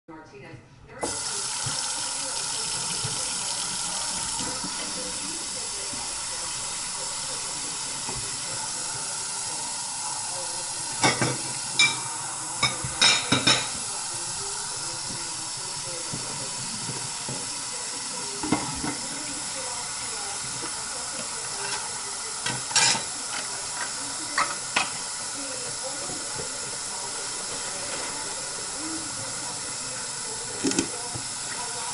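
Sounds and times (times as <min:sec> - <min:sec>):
faucet running into a sink: 0:01.0 - 0:31.9
dishes clattering in a sink: 0:10.8 - 0:13.9, 0:18.4 - 0:19.2, 0:20.5 - 0:26.9, 0:30.4 - 0:31.8.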